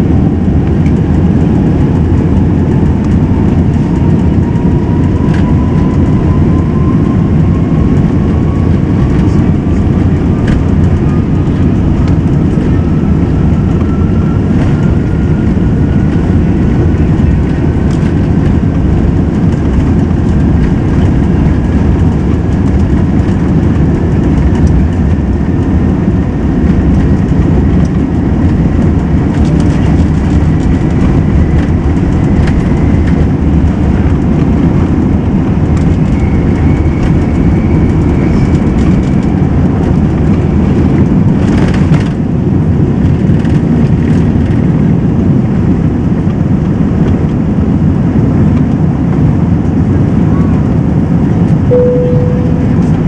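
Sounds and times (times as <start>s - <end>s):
aircraft engine low rumble: 0.0s - 53.0s
faint rising whine: 51.7s - 53.0s.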